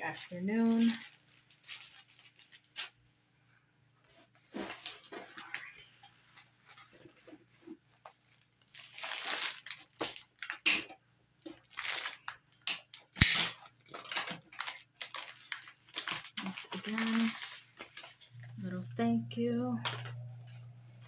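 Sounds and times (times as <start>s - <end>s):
packaging crinkling and rustling: 0.0s - 3.0s, 6.8s - 18.6s.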